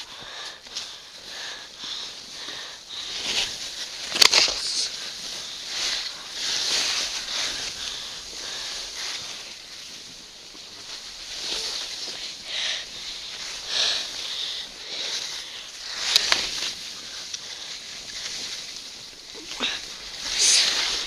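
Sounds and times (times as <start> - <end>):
snow hissing under skis: 1.4 - 21.0.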